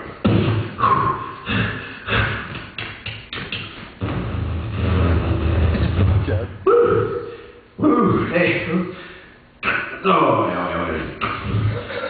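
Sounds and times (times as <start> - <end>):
mouth-made thuds and bangs: 0.0 - 1.0.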